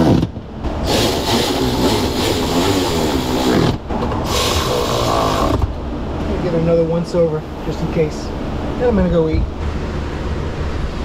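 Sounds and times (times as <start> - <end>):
cordless ratchet motor: 0.9 - 5.6.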